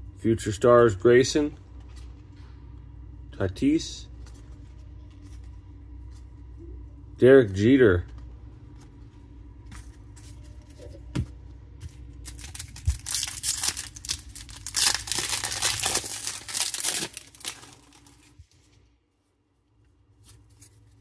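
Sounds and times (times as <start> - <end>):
wrapper crinkling and tearing: 12.2 - 18.4.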